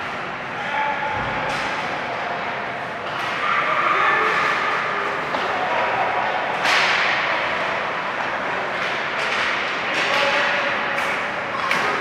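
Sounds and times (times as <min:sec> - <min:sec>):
steady rink din: 0:03.0 - 0:12.0.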